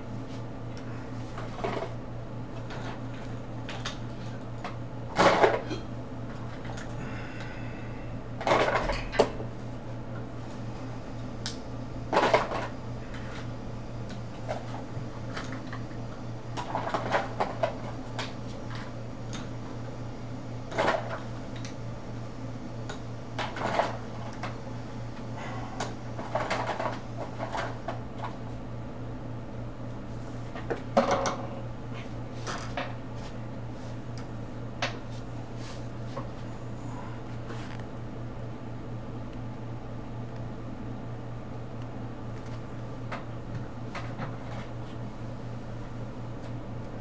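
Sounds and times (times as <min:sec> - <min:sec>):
low electrical hum: 0:00.0 - 0:47.0.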